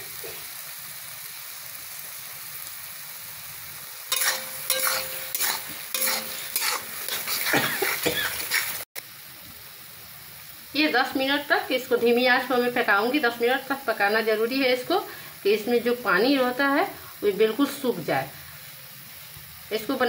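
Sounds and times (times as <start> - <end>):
food sizzling in a pan: 0.0 - 20.0
metal spatula scraping a pan: 4.1 - 8.8.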